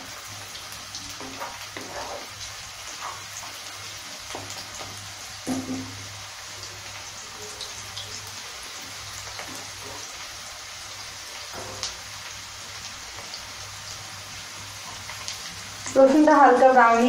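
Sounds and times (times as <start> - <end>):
onions sizzling in hot oil: 0.0 - 17.0
wooden spatula knocking pan: 5.4 - 6.0.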